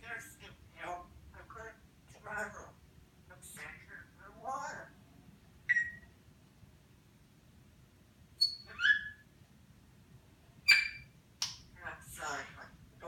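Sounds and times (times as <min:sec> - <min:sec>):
parrot whistling and chirping: 0:05.7 - 0:06.1, 0:08.4 - 0:09.2, 0:10.7 - 0:11.1.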